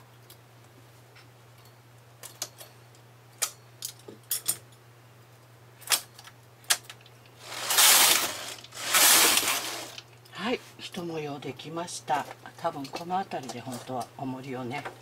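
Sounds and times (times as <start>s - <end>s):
knitting machine needles clicking: 7.5s - 10.0s.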